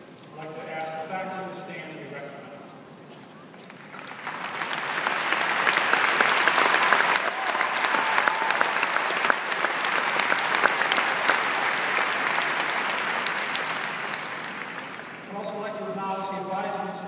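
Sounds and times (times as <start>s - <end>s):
audience applauding: 3.5s - 15.6s.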